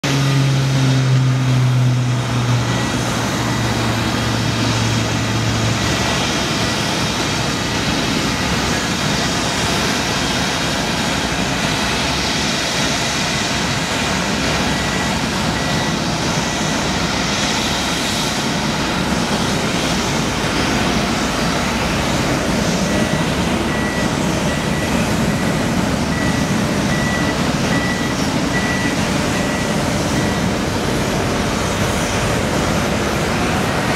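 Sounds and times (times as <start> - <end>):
forklift engine: 0.0 - 33.9
high beeping alarm: 2.4 - 9.1, 14.7 - 18.4, 22.8 - 30.8.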